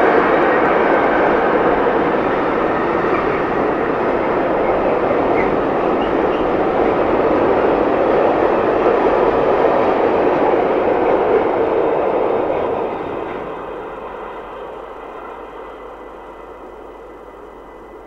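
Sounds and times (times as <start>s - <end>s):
freight train wheels rushing on rail: 0.0s - 18.0s.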